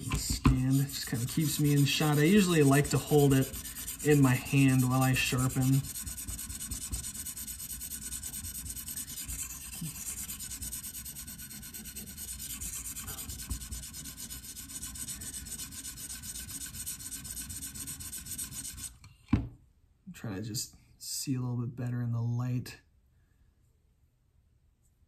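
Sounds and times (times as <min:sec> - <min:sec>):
sharpening stone scratching knife: 0:00.7 - 0:18.9.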